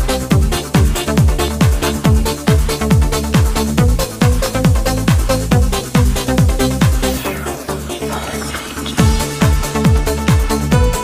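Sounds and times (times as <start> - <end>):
electronic dance music: 0.0 - 11.0
sweeping noise: 6.9 - 9.6.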